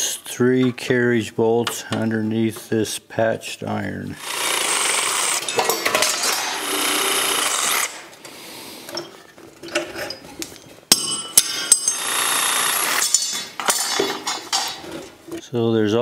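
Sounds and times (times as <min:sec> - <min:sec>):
reciprocating saw cutting metal: 0:04.2 - 0:08.1, 0:11.7 - 0:13.3
iron and wood knocks and rattles: 0:13.0 - 0:15.4.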